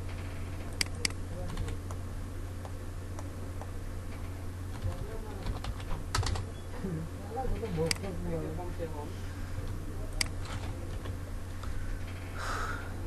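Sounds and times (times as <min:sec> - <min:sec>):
steady low hum: 0:00.0 - 0:13.0
keyboard and mouse clicks: 0:00.7 - 0:02.0, 0:07.8 - 0:08.0.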